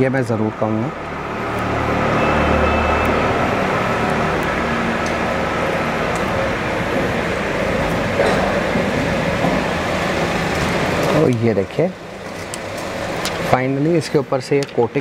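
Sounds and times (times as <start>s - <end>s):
traffic noise: 0.0s - 15.0s.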